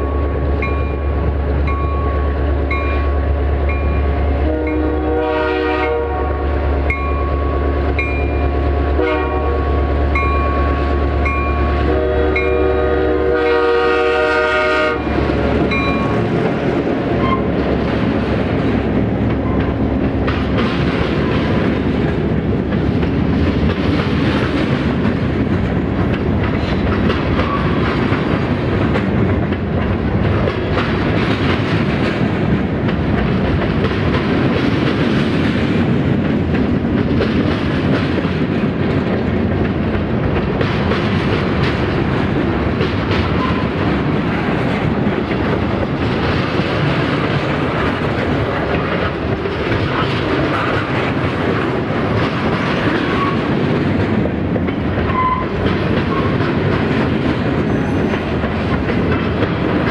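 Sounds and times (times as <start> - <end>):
diesel locomotive engine: 0.0 - 59.9
train wheels clickety-clack: 0.0 - 59.9
train horn blasts: 4.3 - 7.8, 8.9 - 15.2.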